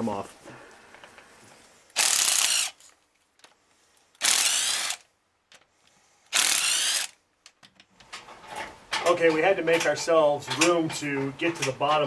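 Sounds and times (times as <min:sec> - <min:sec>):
power tool whining in bursts: 0:02.0 - 0:02.8, 0:04.2 - 0:05.0, 0:06.3 - 0:07.2.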